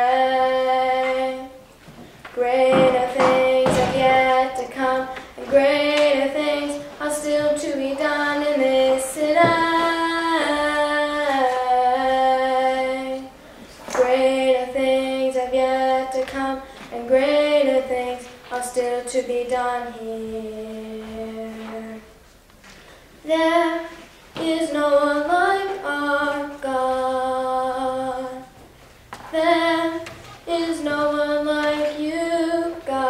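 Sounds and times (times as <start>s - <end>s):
girl singing: 0.0s - 22.2s, 23.2s - 28.6s, 29.2s - 33.0s.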